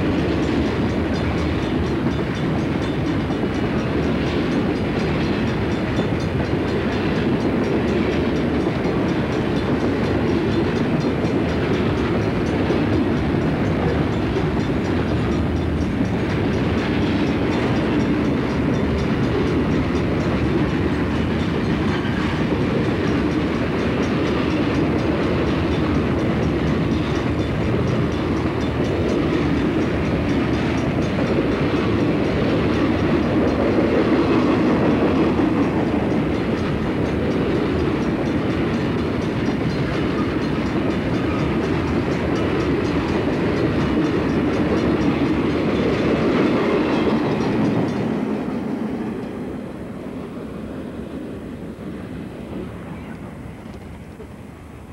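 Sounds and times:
steel wheels on rail: 0.0s - 54.9s.

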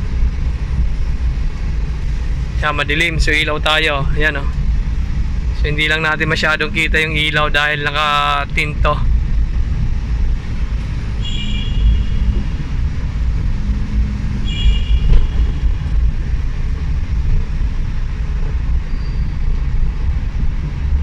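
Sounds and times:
road and engine rumble in cabin: 0.0s - 21.0s.

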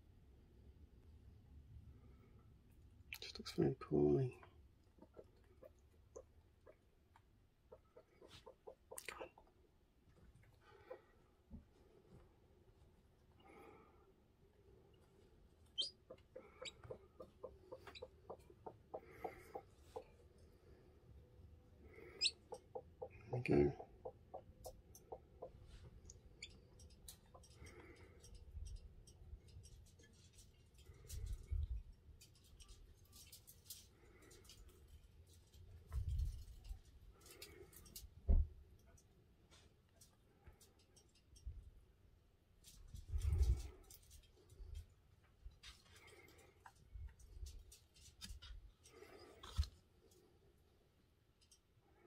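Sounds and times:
chicken clucking softly: 3.1s - 9.7s, 10.5s - 11.2s, 15.7s - 20.4s, 21.8s - 27.7s
chick peeps: 4.9s - 6.9s, 7.6s - 9.5s, 15.7s - 20.1s, 22.0s - 25.7s.

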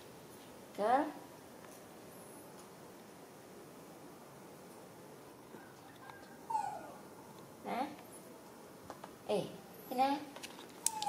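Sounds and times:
room hiss: 0.0s - 5.6s.

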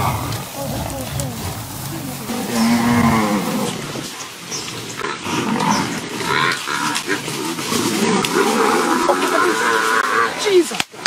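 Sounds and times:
buffalo bellowing: 0.0s - 4.2s, 4.8s - 10.4s
jumbled animal noise: 0.0s - 10.8s.

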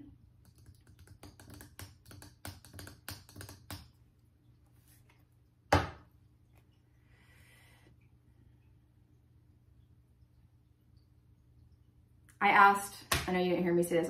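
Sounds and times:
cards clicking and tapping: 0.4s - 3.9s.

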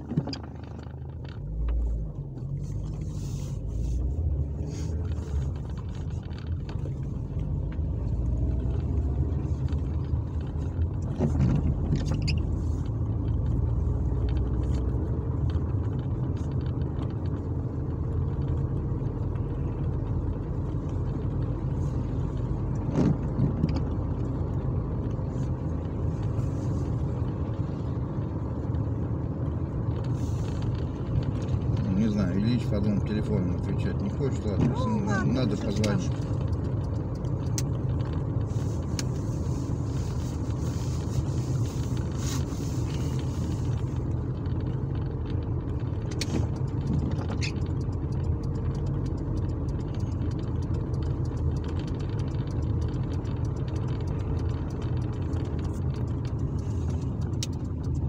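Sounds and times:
car engine and tyres on wet road: 0.0s - 58.0s.

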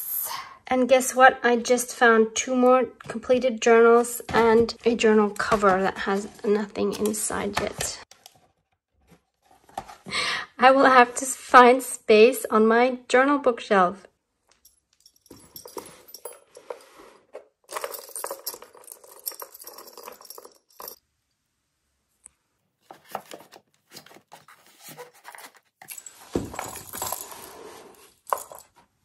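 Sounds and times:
metal charms jingling: 14.6s - 17.0s, 17.7s - 21.0s, 25.8s - 28.7s.

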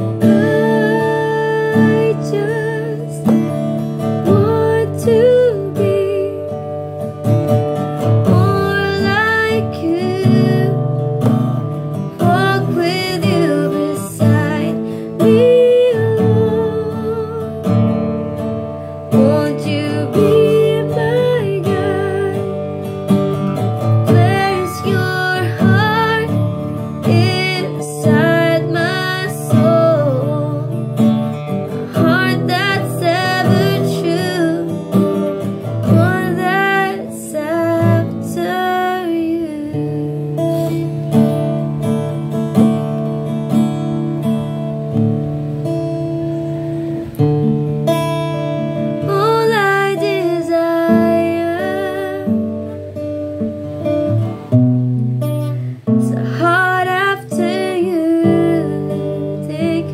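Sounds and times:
person singing: 0.0s - 18.1s, 19.1s - 22.8s, 23.6s - 41.1s, 49.0s - 52.9s, 55.6s - 59.9s
acoustic guitar strumming: 0.0s - 59.9s.

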